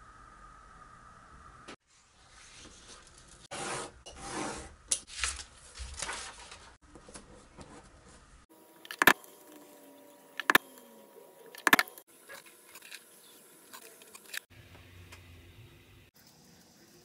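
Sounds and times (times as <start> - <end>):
paper crinkle: 5.1 - 6.8
paper rustling on cutting mat: 5.1 - 8.2.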